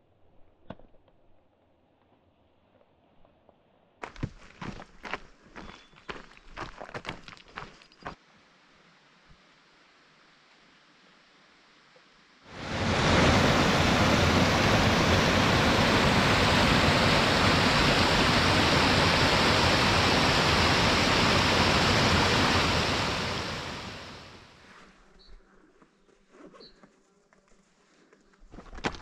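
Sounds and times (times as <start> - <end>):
creek rushing over rocks: 12.5 - 24.4.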